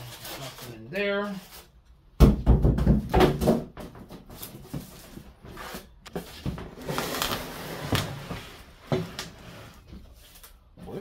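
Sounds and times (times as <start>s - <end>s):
packaging rustling and scraping: 0.0s - 1.8s, 4.3s - 10.8s.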